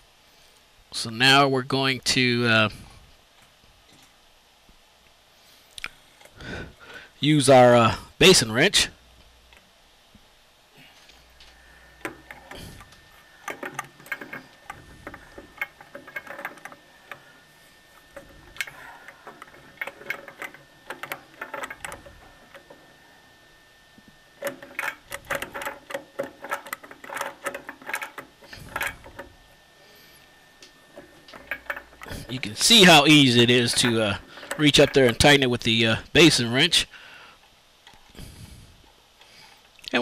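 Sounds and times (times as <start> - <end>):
wrench clicking and rattling: 12.0 - 17.2, 18.1 - 22.8, 24.4 - 29.3, 30.6 - 35.5.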